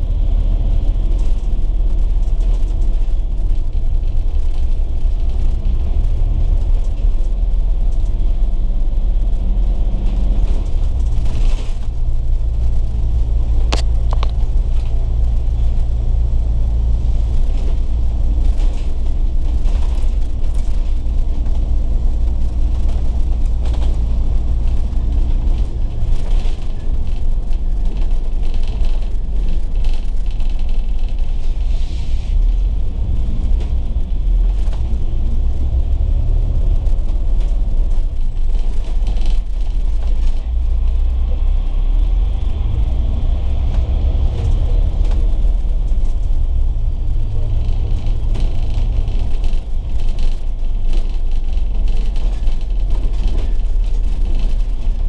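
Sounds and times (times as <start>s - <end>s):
bus engine and road noise: 0.0s - 55.0s.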